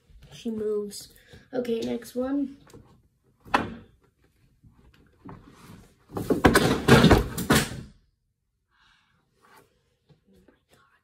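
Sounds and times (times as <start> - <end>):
objects knocking and clattering: 6.1 - 7.9
drawer or door bumps: 6.2 - 7.8.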